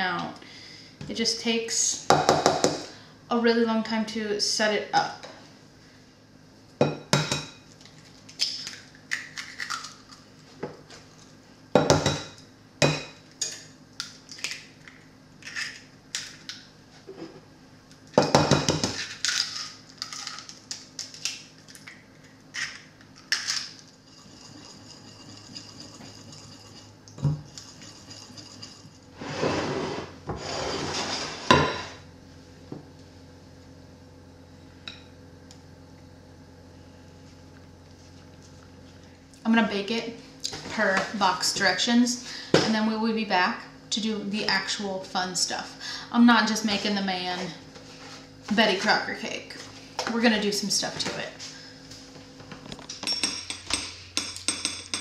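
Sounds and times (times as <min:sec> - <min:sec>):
utensils clinking against glass bowl: 0:53.0 - 0:55.0.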